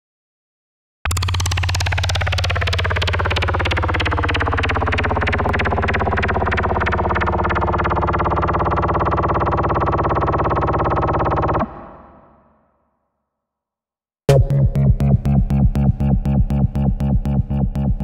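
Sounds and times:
distorted electronic drone music: 14.3s - 18.0s.

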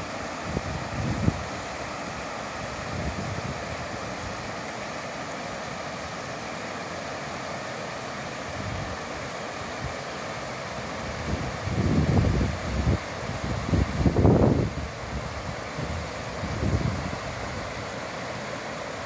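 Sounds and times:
river rushing over stones: 0.0s - 19.0s
wind rumble on microphone: 0.4s - 1.6s, 2.7s - 4.1s, 11.2s - 17.6s.

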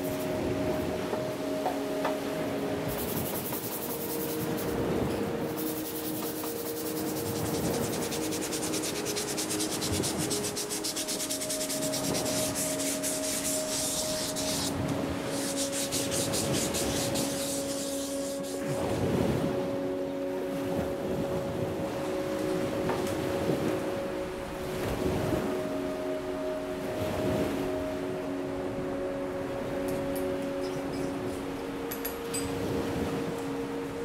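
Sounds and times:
sandpaper scraping wood: 5.6s - 18.6s.

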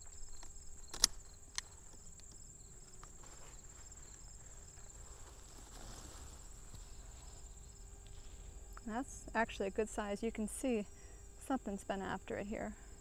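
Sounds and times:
rustling of vines: 0.0s - 8.7s
crickets chirping: 0.0s - 13.0s
small click: 0.9s - 2.4s.

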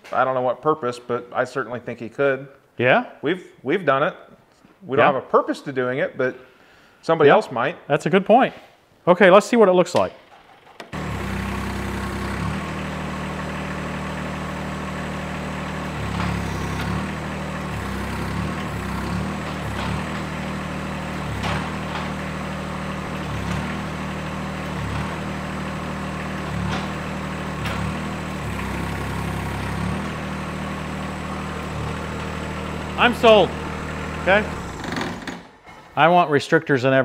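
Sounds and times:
diesel tractor engine running: 10.4s - 36.0s.

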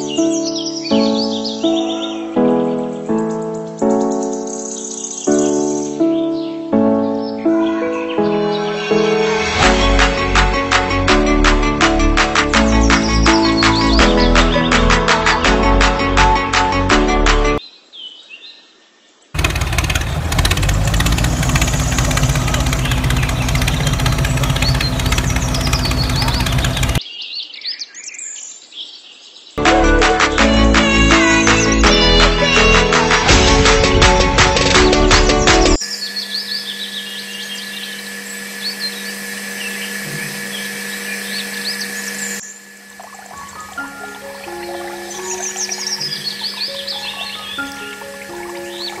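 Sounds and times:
birds chirping: 0.0s - 9.0s, 12.5s - 15.1s, 19.3s - 29.5s, 35.2s - 49.0s
gear whir: 19.4s - 27.0s, 35.8s - 44.0s
small electric motor buzzing: 35.8s - 46.8s.

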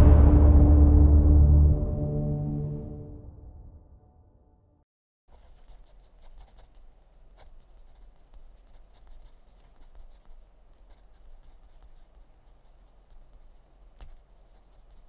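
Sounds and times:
low room hum: 5.3s - 15.0s
pen scratching on paper: 5.3s - 15.0s.

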